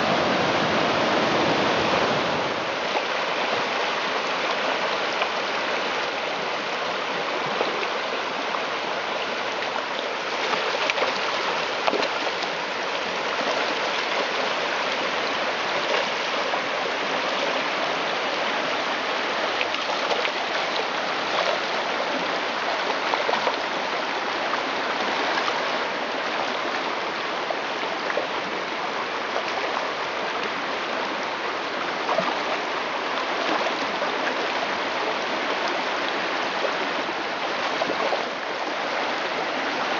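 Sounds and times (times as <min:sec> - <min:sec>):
creek babbling over stones: 0:00.0 - 0:39.9.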